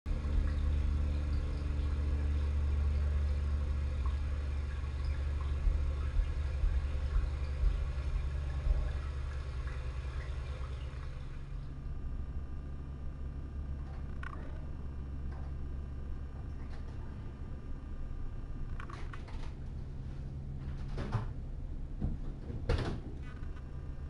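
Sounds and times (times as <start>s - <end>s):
steady low hum: 0.1s - 24.0s.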